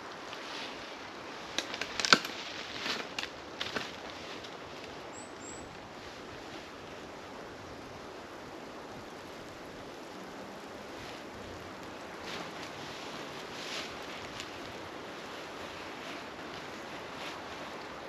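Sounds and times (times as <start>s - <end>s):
steady outdoor hiss: 0.0s - 18.0s
faint high chirp: 5.1s - 5.7s.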